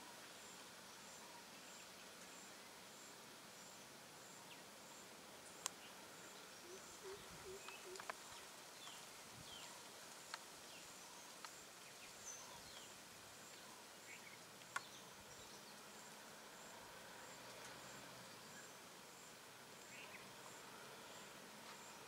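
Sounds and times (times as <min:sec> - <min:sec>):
bird chirps: 0:05.5 - 0:09.9.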